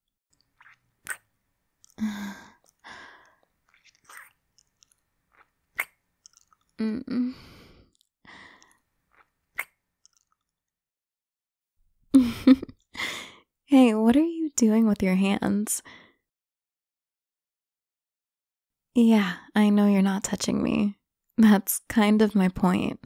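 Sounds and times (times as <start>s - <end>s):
woman making kissing sounds: 1.0s - 2.0s, 3.8s - 7.3s
breathy hums: 2.0s - 3.5s, 6.8s - 8.7s.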